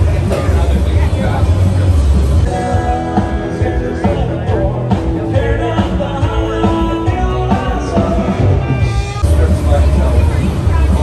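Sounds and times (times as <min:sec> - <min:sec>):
song with steady accompaniment: 0:00.0 - 0:11.0.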